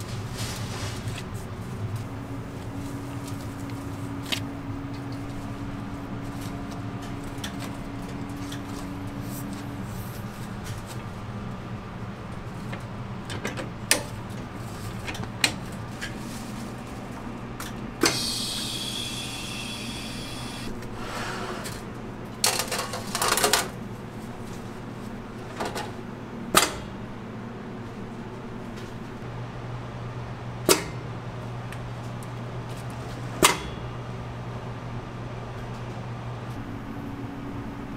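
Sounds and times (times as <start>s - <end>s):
low machine hum: 0.0s - 37.9s
compressed air hiss: 18.0s - 21.6s.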